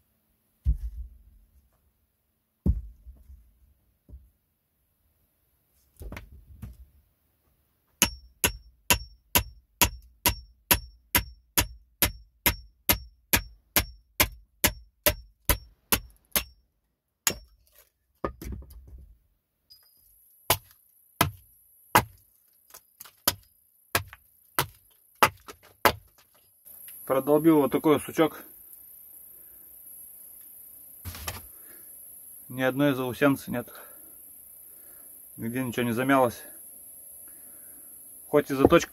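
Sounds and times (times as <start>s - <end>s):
hatchet struck with metal ringing: 8.0s - 16.6s.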